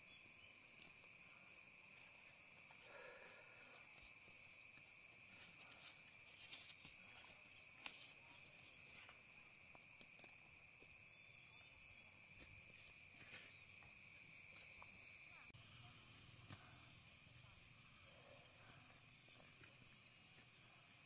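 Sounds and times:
insects buzzing: 0:00.0 - 0:21.0
pulsed insect chirp: 0:05.8 - 0:21.0.

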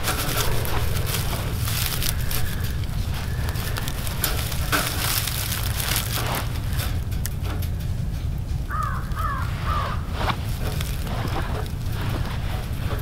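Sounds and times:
bird calling: 0:00.0 - 0:06.9, 0:08.7 - 0:10.4
wire cage trap clicks and rustling: 0:00.0 - 0:09.4
steady low rumble: 0:00.0 - 0:13.0.

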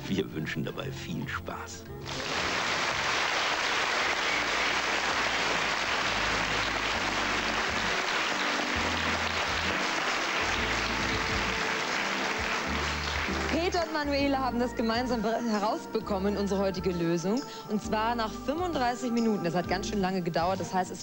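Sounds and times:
music playing: 0:00.0 - 0:21.0
audience clapping: 0:02.0 - 0:14.4.

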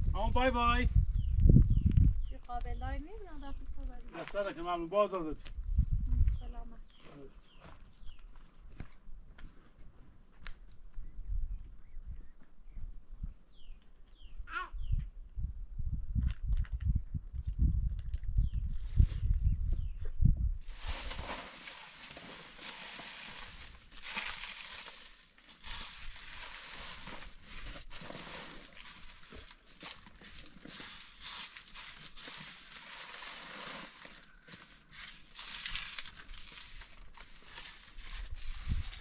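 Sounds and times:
charcoal scraping and clinking: 0:20.7 - 0:39.0
plastic sack rustling: 0:20.7 - 0:39.0.

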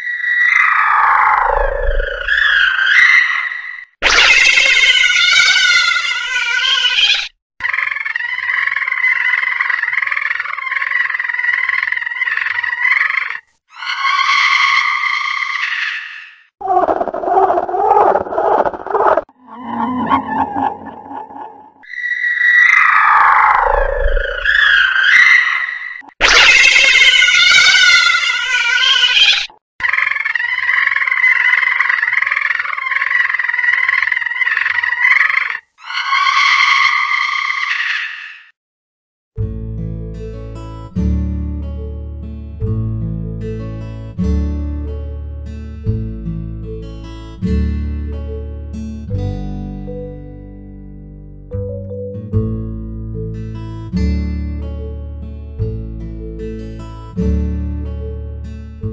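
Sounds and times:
high wavering cat meow: 0:00.0 - 0:09.5, 0:21.9 - 0:34.8, 0:35.8 - 0:38.5.

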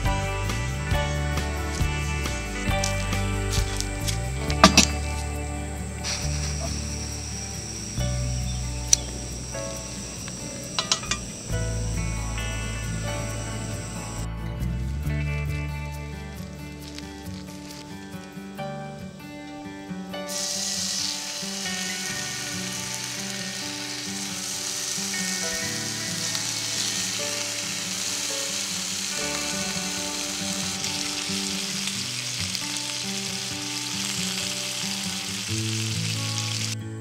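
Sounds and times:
background music: 0:00.0 - 0:37.0
bacon sizzling in a skillet: 0:20.2 - 0:36.8.

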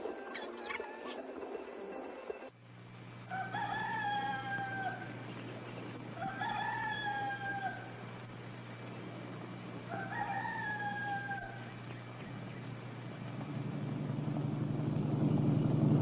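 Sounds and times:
steady low hum: 0:02.6 - 0:16.0
rooster crowing: 0:03.2 - 0:08.4, 0:09.0 - 0:12.9.

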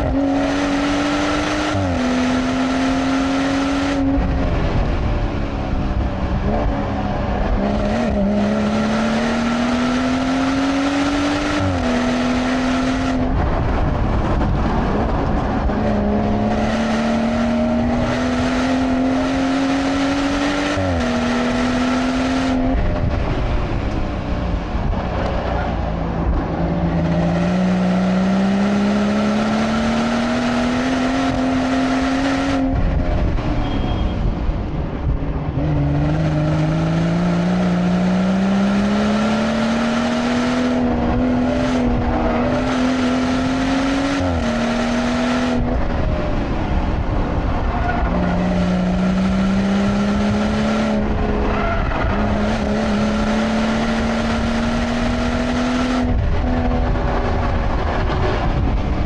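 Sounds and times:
car engine accelerating: 0:00.0 - 0:59.0.

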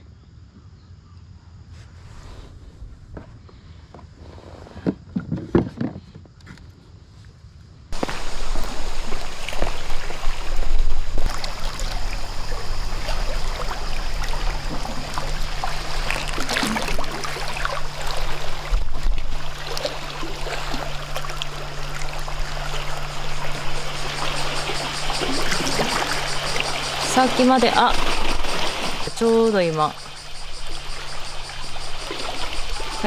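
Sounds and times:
steady low hum: 0:07.8 - 0:33.0
waves lapping against rocks: 0:08.0 - 0:33.0.

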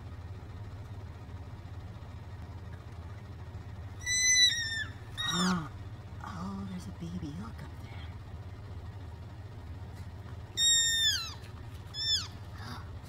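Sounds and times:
steady low rumble: 0:00.0 - 0:13.0
elk squealing calls: 0:04.0 - 0:05.8, 0:10.6 - 0:12.4.

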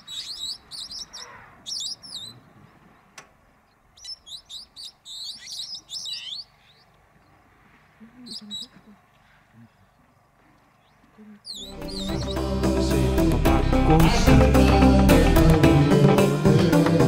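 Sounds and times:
bird chirping: 0:00.0 - 0:07.4, 0:08.1 - 0:12.9.

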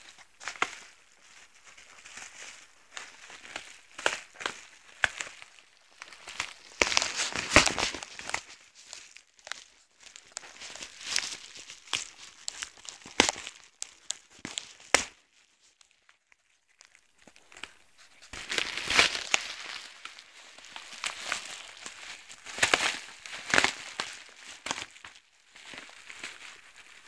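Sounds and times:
dog tearing and crinkling paper: 0:06.0 - 0:15.0, 0:17.3 - 0:27.0.

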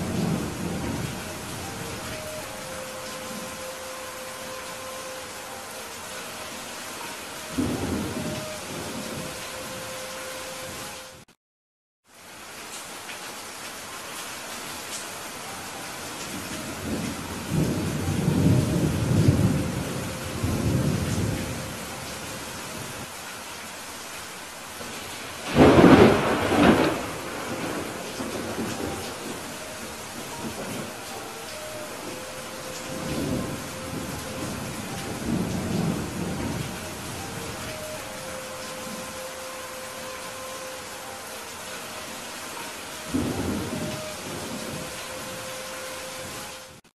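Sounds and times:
steady rain: 0:00.0 - 0:11.3, 0:12.0 - 0:46.9
rolling thunder rumble: 0:16.3 - 0:22.0, 0:25.4 - 0:39.2.

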